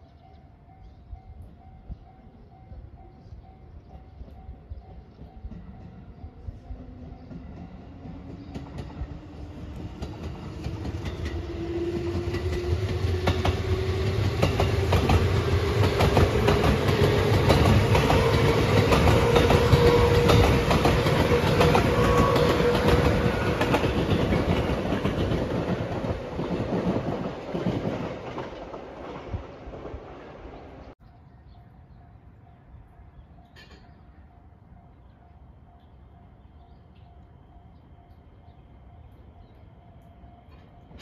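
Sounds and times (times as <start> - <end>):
electric train whine: 0.0 - 30.9, 34.1 - 41.0
train wheels clacking on rail joints: 4.2 - 30.0.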